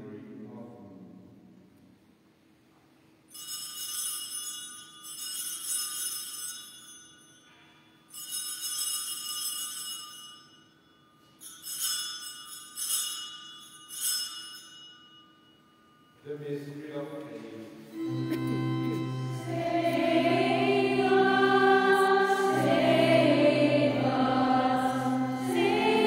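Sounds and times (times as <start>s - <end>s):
small handbells ringing: 3.3s - 16.2s.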